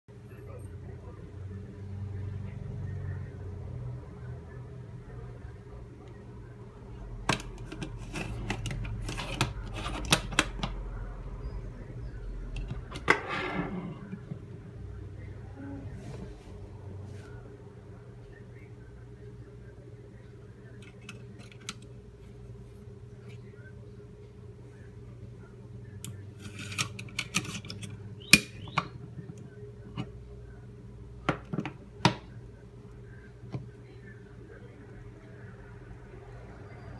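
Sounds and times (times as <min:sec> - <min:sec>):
metallic clicks and scrapes: 0:07.3 - 0:10.7, 0:26.0 - 0:28.0.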